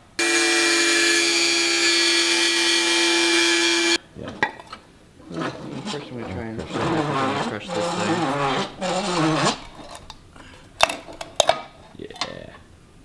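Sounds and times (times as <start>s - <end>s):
rotary tool grinding whine: 0.0s - 4.0s, 5.3s - 10.0s.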